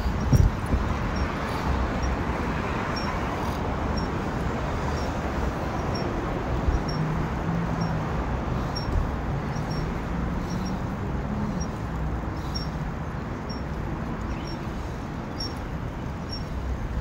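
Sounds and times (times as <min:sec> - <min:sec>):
wind on microphone: 0:00.0 - 0:02.6.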